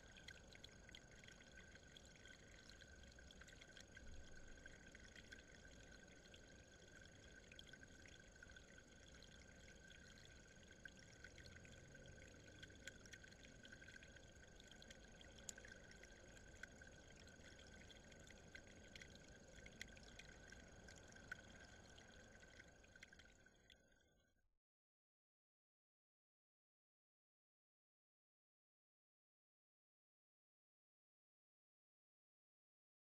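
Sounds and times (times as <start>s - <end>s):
water trickling over rock: 0.0s - 24.3s.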